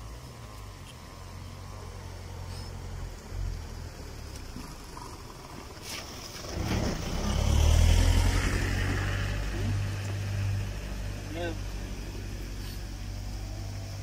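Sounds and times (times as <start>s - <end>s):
engine rumbling low: 0.0s - 14.0s.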